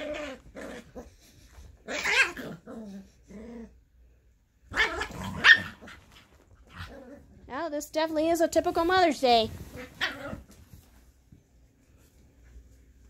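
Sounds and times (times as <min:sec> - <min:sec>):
dogs growling: 0:00.0 - 0:04.0, 0:04.7 - 0:07.5.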